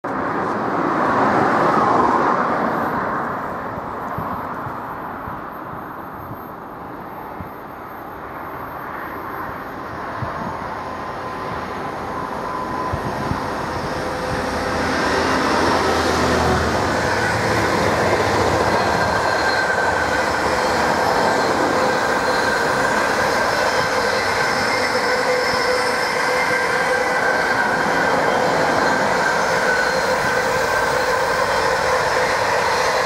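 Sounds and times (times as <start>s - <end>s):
diesel locomotive engine: 0.1s - 33.0s.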